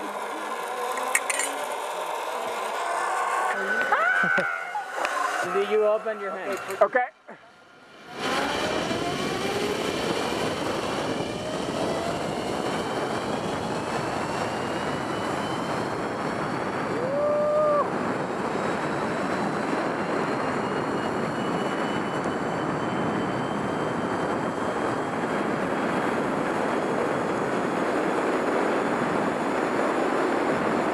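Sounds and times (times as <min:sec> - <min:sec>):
faint rising whine: 0:00.0 - 0:30.9
zip-line trolley on cable: 0:00.0 - 0:30.9
wind rushing: 0:07.6 - 0:30.9.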